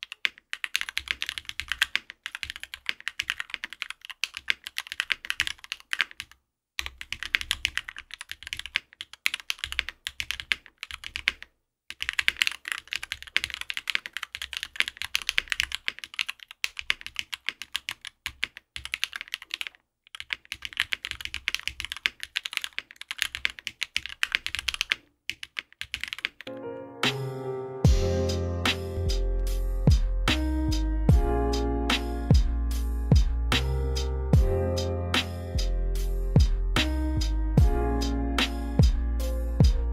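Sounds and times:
mechanical keyboard typing: 0:00.0 - 0:26.6.

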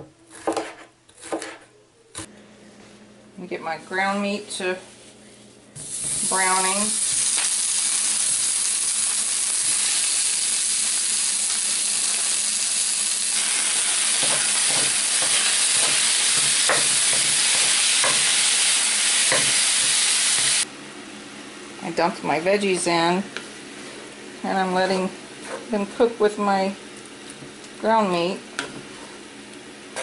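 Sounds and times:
meat sizzling in a skillet: 0:05.8 - 0:20.6.

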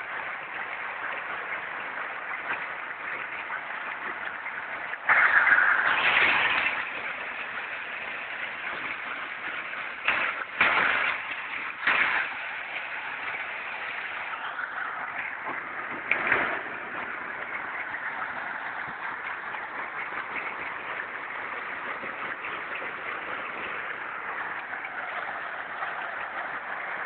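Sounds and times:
hailstones clattering: 0:05.1 - 0:27.0.

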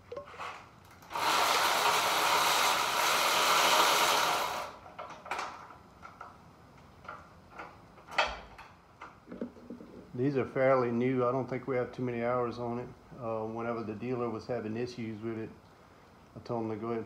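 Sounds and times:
cordless drill running: 0:01.0 - 0:04.8.

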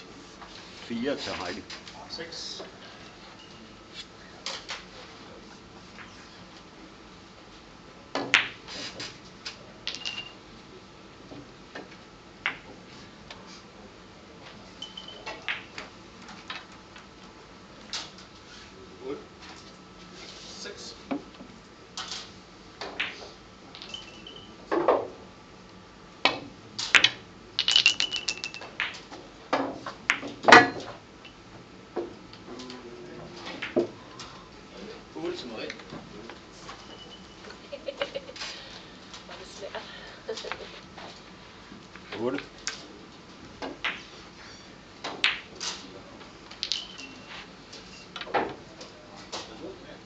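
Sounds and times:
billiard balls clicking: 0:09.8 - 0:10.4, 0:22.8 - 0:24.9, 0:26.3 - 0:31.0, 0:45.0 - 0:45.8, 0:46.5 - 0:47.3.

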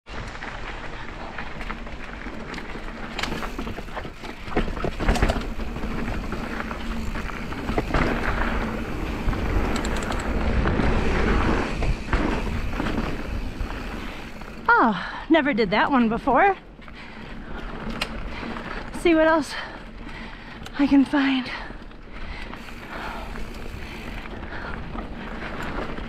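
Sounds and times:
mountain bike rolling on dirt: 0:00.1 - 0:26.0
bike knocks and rattles: 0:02.4 - 0:14.7.

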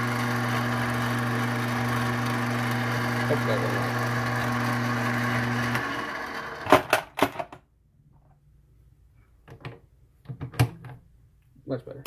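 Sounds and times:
lathe motor hum: 0:00.0 - 0:06.7.

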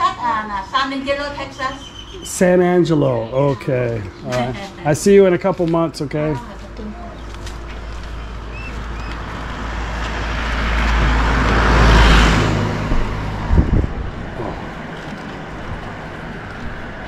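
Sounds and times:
vehicle passing by: 0:07.2 - 0:17.0
low thumps: 0:10.9 - 0:16.0.

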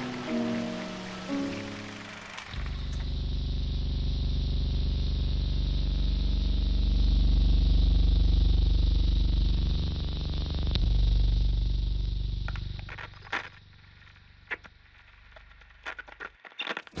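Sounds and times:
vehicle engine running: 0:00.0 - 0:16.2.

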